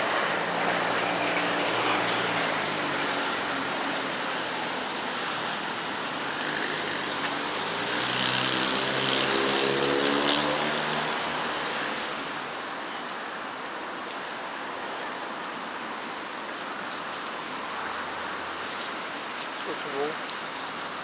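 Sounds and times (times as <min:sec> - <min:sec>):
traffic tyre rush: 0:00.0 - 0:21.0.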